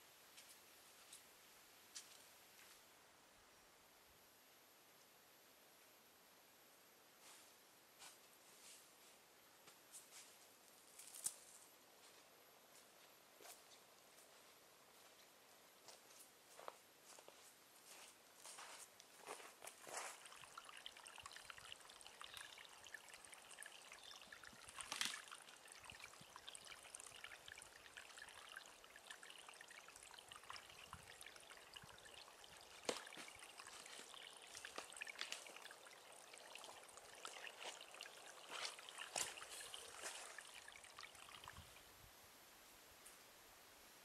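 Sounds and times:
water trickling: 0:17.9 - 0:41.9.

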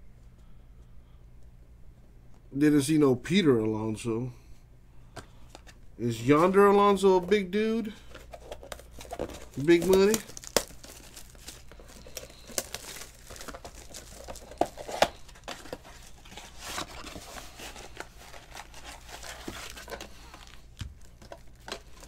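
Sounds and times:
cardboard and wrapping crinkling: 0:05.5 - 0:22.0.

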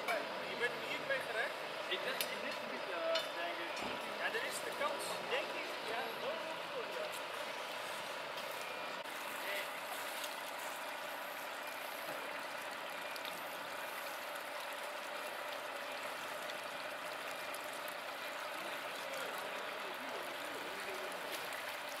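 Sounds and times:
water pouring into a manhole: 0:09.0 - 0:22.0.

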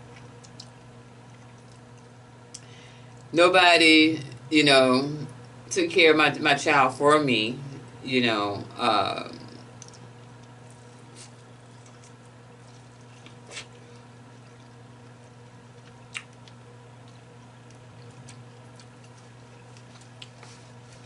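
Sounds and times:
chewing corn on the cob: 0:00.0 - 0:03.3, 0:09.5 - 0:21.0
steady low hum: 0:00.0 - 0:21.0.

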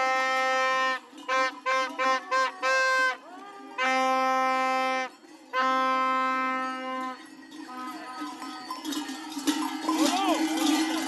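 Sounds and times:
plastic toy horn blasts: 0:00.0 - 0:03.2, 0:03.8 - 0:07.9
voices and procession din: 0:00.0 - 0:11.0.

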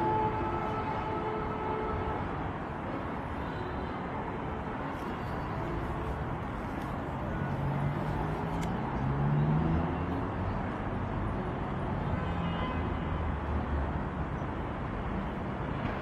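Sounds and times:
road traffic hum: 0:00.0 - 0:16.0
vehicle passing: 0:05.6 - 0:10.5.

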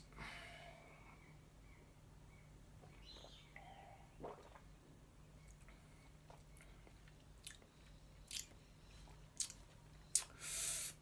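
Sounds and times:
wet lip smacks and mouth clicks: 0:08.3 - 0:08.6, 0:09.4 - 0:10.3
breathy hiss of breath: 0:10.3 - 0:11.0.

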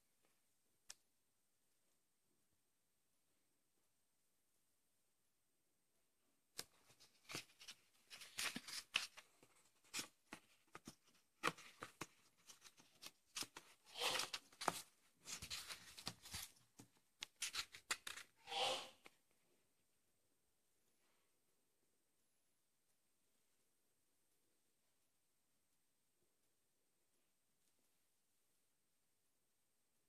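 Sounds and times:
book pages flipping: 0:06.6 - 0:18.4.

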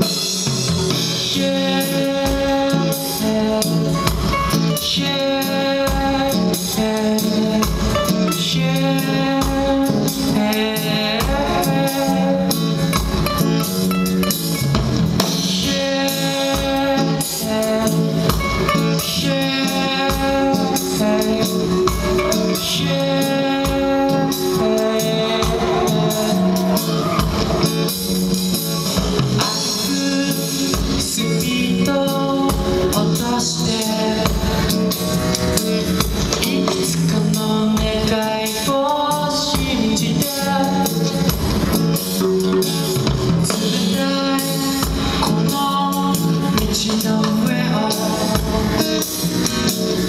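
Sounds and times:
drum kit beat: 0:00.0 - 0:50.0
electric guitar: 0:00.0 - 0:50.0
person singing: 0:00.0 - 0:50.0.

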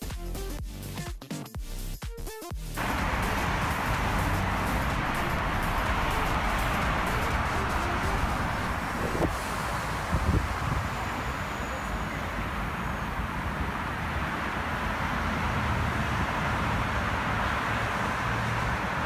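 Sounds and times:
highway traffic noise: 0:02.8 - 0:19.0.

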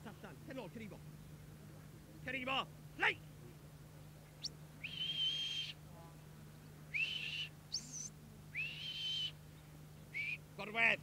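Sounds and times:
whistle commands: 0:04.8 - 0:05.8, 0:06.9 - 0:09.4, 0:10.1 - 0:10.4.

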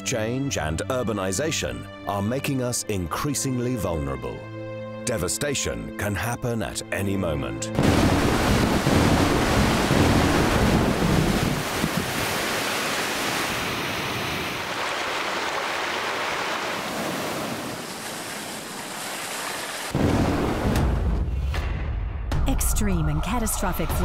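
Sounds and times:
water rushing in a torrent: 0:07.8 - 0:20.6.

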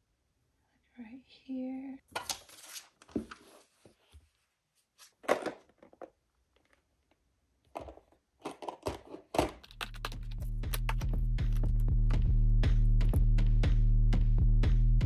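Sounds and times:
paper rustling and scraping: 0:02.2 - 0:04.0.

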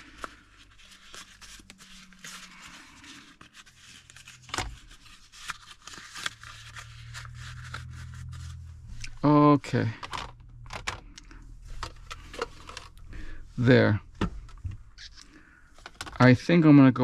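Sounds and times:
steady low hum: 0:07.0 - 0:15.8
rustling with small plastic clicks: 0:10.0 - 0:13.1, 0:14.4 - 0:16.2.

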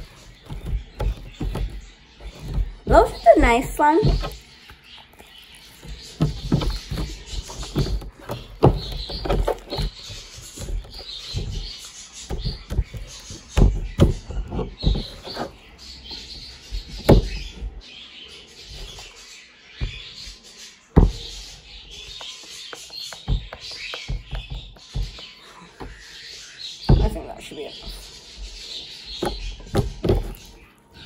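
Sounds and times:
slime squelching and slapping: 0:00.0 - 0:15.3.

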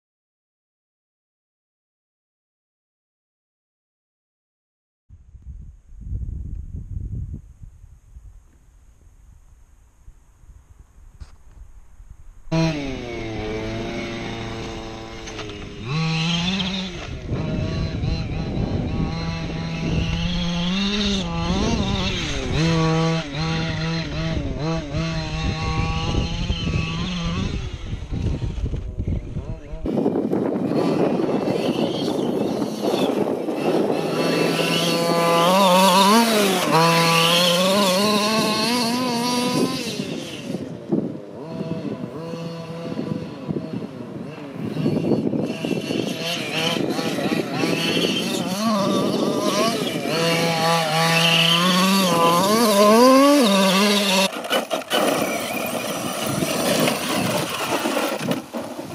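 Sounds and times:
small motor running: 0:12.5 - 0:58.9
small two-stroke engine revving: 0:12.5 - 0:58.9.

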